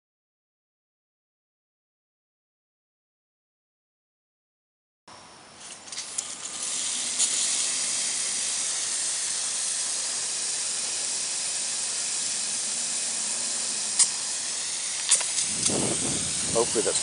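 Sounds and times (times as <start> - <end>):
sprinkler spraying water: 5.6 - 17.0
sharp clicks: 13.9 - 15.8.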